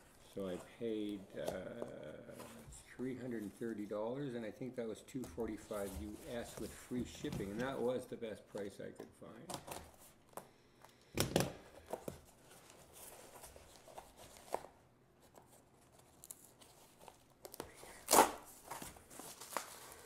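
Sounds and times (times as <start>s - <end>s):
parcel tape and wrapping peeled off: 15.9s - 20.0s.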